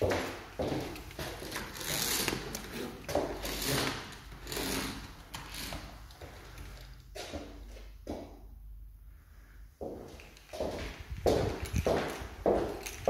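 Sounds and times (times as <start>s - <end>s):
footsteps on hard floor: 0.0s - 4.4s, 9.8s - 13.0s.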